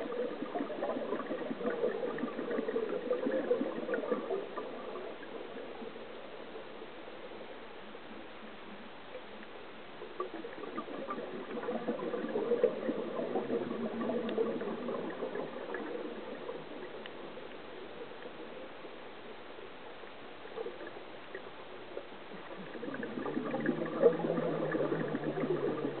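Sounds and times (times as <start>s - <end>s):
diver's bubbles gurgling underwater: 0.0s - 6.2s, 10.0s - 17.6s, 22.2s - 26.0s
steady underwater hiss: 0.0s - 26.0s.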